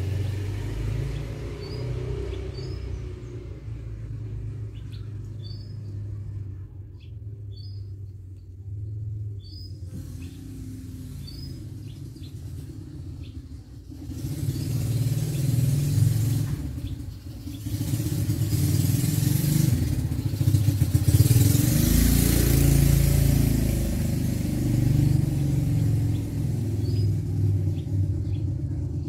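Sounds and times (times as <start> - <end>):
vehicle engine running: 0.0 - 29.0.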